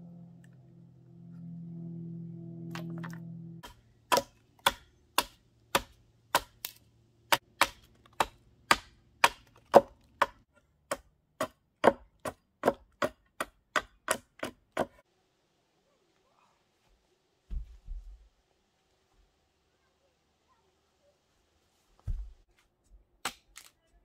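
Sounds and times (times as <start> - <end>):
hatchet chopping wood: 3.6 - 15.0, 23.2 - 23.7.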